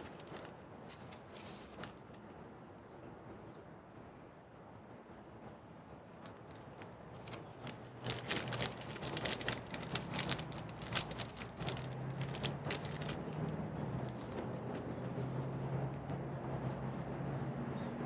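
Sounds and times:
paper packaging crinkling: 0.0 - 2.2, 6.2 - 14.9.

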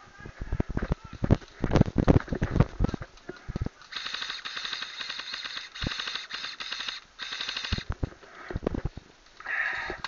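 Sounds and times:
airsoft gun full-auto fire: 3.9 - 7.9.

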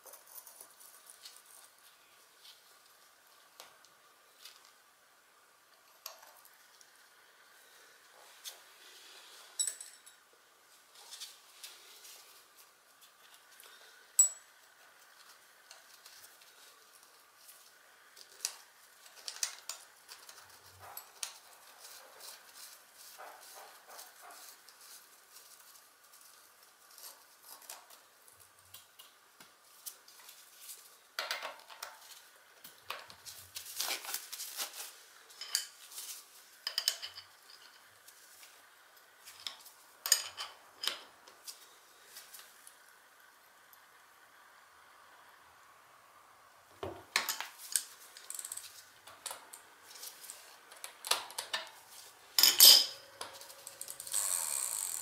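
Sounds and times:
metal tools clinking: 9.6 - 10.2, 14.2 - 14.4, 35.4 - 35.8, 52.4 - 54.2.

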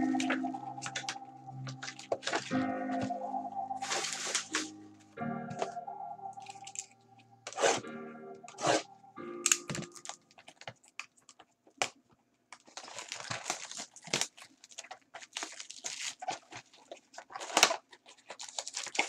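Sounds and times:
plastic wrapping crinkling: 3.8 - 4.7, 12.6 - 19.0.

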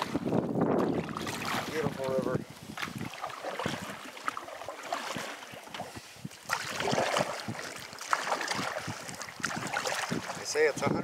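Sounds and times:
paddle splashing through water: 0.0 - 10.7
wind noise on microphone: 0.0 - 11.0.

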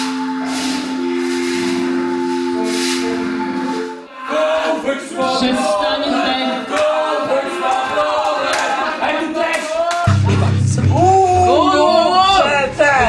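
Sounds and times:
held chord: 0.0 - 4.1
voices chanting unaccompanied: 0.0 - 9.5.

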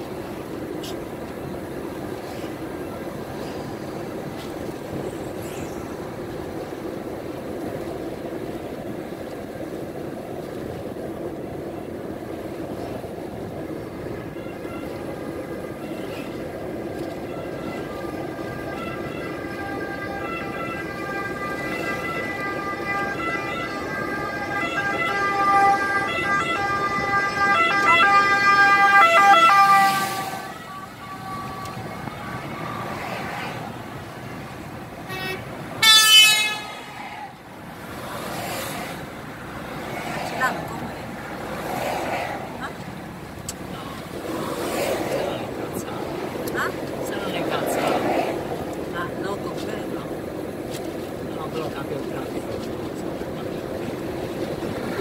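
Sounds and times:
car road and tyre noise: 0.0 - 55.0
fire engine siren: 14.2 - 37.4.

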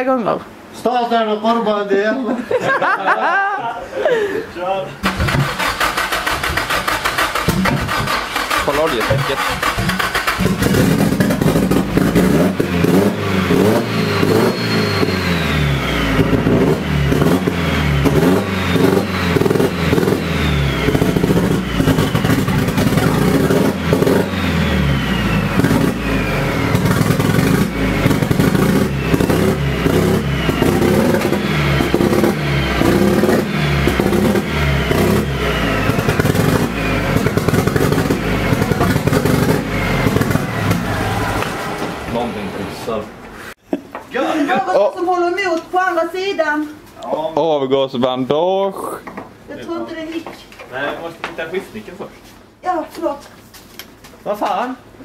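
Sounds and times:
engine running roughly revving: 5.0 - 42.8.

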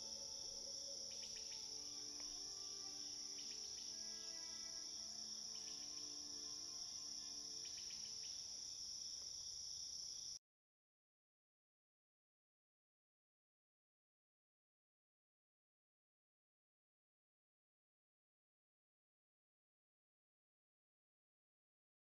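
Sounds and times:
soft held music tones: 0.0 - 9.5
crickets chirring: 0.0 - 10.4.

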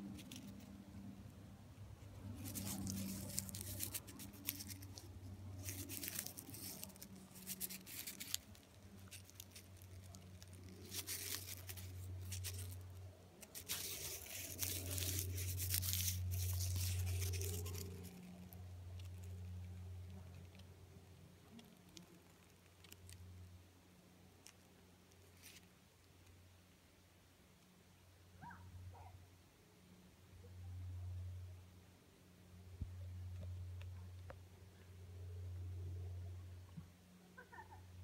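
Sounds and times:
snakeskin crinkling and rustling: 0.0 - 0.7, 2.1 - 20.8, 21.4 - 23.4.

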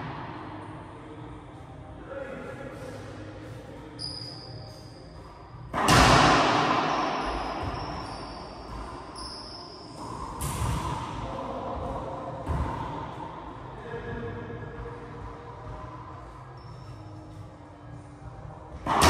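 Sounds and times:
racquetball bang echoing: 5.7 - 8.9.

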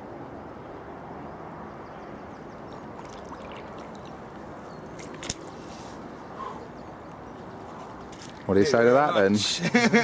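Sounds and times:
lake water lapping and trickling: 2.5 - 6.1, 8.1 - 8.8.

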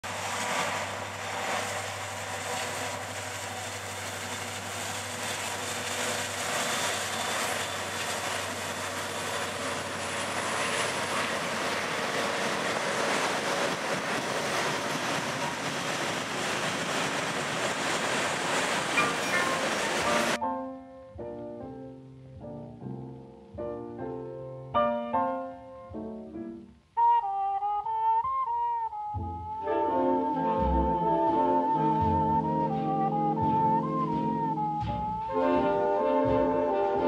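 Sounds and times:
diesel locomotive hum: 0.0 - 20.4, 27.3 - 37.0
train wheels on rails: 0.0 - 20.4, 31.2 - 37.0.

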